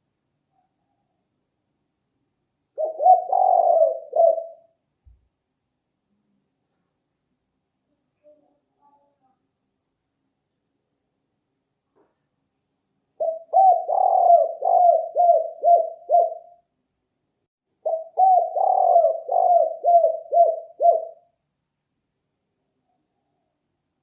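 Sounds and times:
dove cooing: 2.8 - 4.7, 13.2 - 16.6, 17.8 - 21.3.

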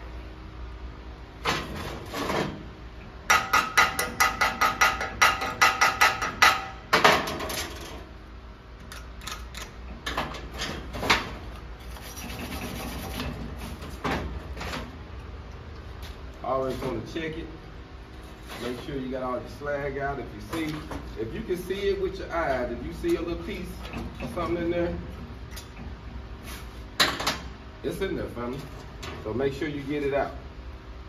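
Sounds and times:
rapid ringing metal strikes: 3.3 - 6.8.

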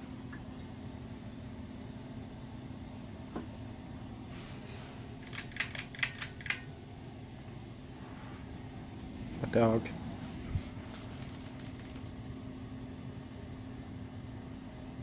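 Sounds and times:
ceiling fan motor hum: 0.0 - 15.0
sharp clicks: 5.2 - 6.7.

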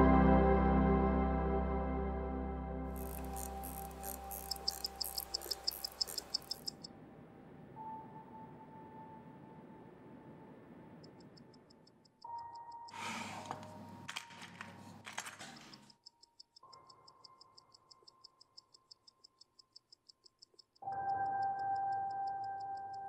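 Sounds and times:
soft background music: 0.0 - 18.4, 20.8 - 23.0
mechanical watch ticking: 3.0 - 6.9, 11.0 - 13.0, 15.1 - 23.0
sharp metallic clicks: 3.0 - 6.9.

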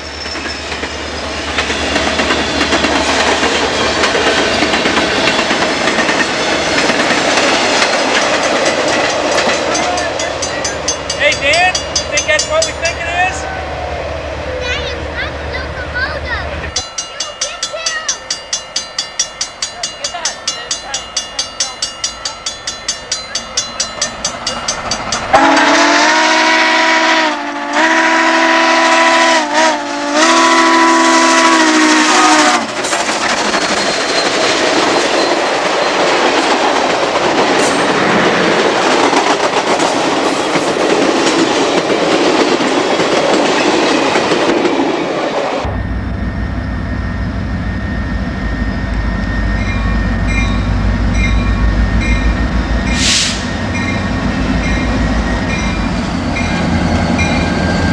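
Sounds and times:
diesel locomotive drone: 0.0 - 57.9
steam locomotive exhaust beats: 0.0 - 57.9
train rushing past: 0.0 - 57.9
steam whistle blasts: 25.3 - 32.7, 52.9 - 53.8.

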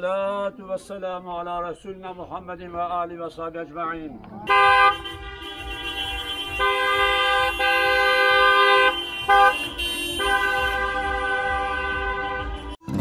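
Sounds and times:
car horns honking: 4.5 - 13.0.

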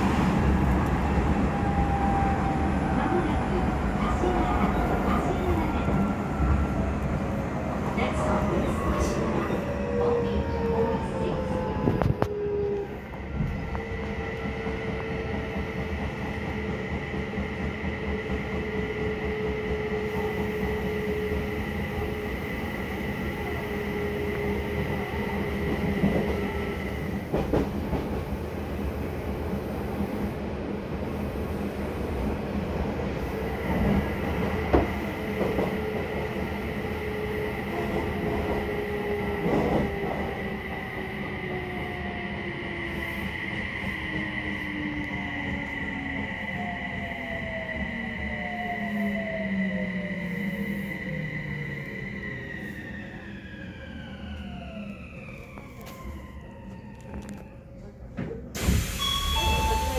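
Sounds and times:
train wheels rumbling on rail: 0.0 - 47.9.

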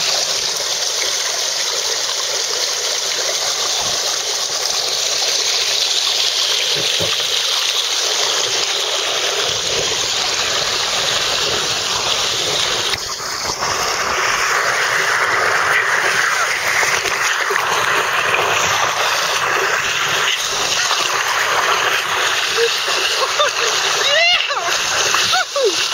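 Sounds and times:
water rushing down a waterslide: 0.0 - 25.9.

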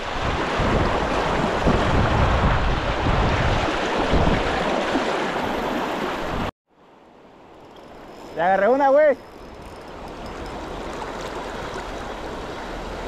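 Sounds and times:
wind buffeting microphone: 0.0 - 6.5.

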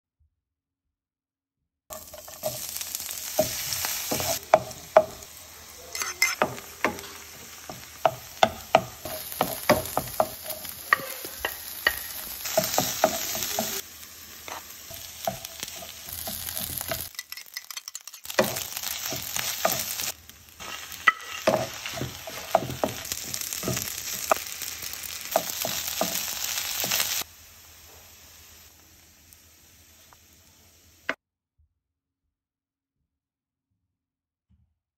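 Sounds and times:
wooden spoon scraping a pan: 1.9 - 5.3, 5.9 - 13.8, 14.4 - 27.2
food sizzling in a pan: 1.9 - 31.2.

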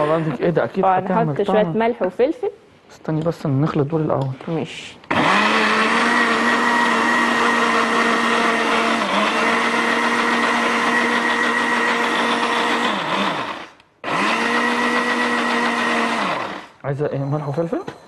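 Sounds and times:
blender running: 0.0 - 0.4, 5.1 - 16.8.

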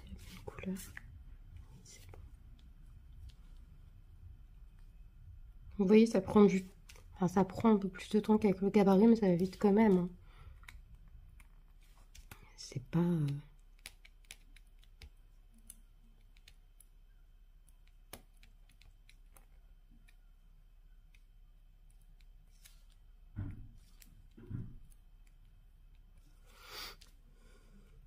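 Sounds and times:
soft low thumps: 0.0 - 5.9.

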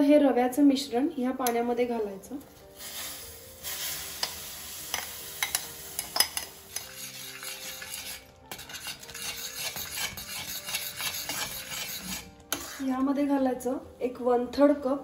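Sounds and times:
bubbling mixture hissing: 2.7 - 10.4
spatula scraping a metal pan: 6.7 - 13.1.

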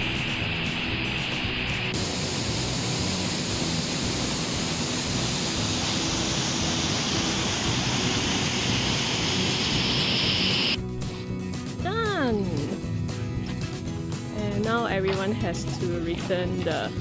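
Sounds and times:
waterfall rushing over rocks: 0.0 - 10.8.

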